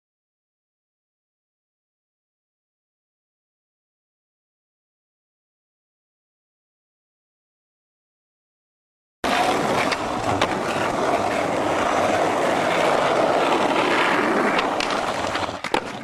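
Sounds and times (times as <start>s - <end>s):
skateboard wheels rolling on asphalt: 9.2s - 16.0s.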